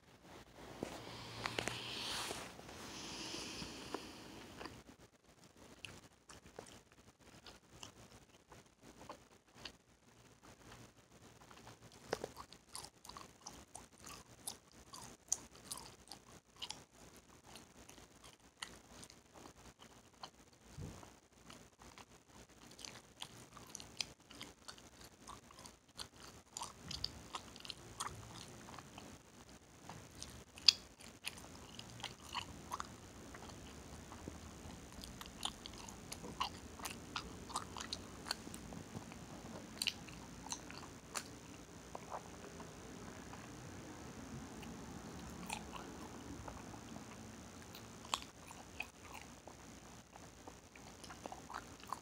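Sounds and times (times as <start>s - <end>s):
gum chewing and smacking: 5.6s - 9.8s, 10.6s - 43.6s, 44.6s - 52.0s
gum cracking: 11.5s - 20.4s, 21.0s - 29.1s, 29.8s - 42.3s, 50.1s - 52.0s.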